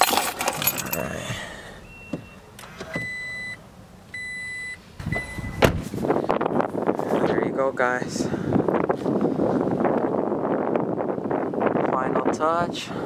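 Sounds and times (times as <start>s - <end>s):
rustling and handling clicks: 0.0s - 1.0s
dashboard warning chime beeps: 0.8s - 5.6s.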